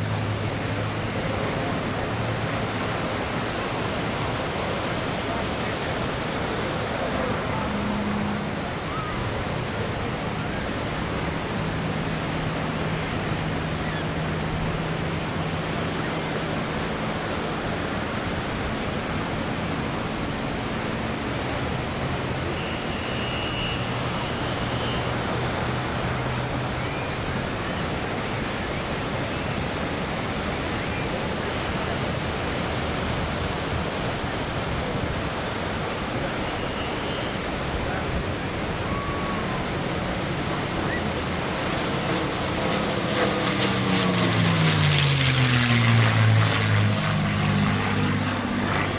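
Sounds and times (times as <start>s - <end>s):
distant propeller plane engine drone: 0.0s - 48.9s
steady rushing noise: 0.0s - 48.9s.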